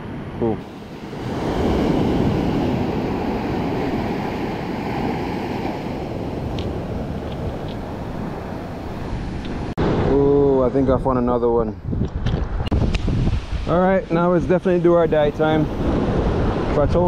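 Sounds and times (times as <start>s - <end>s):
surf breaking on sand: 0.6s - 7.2s.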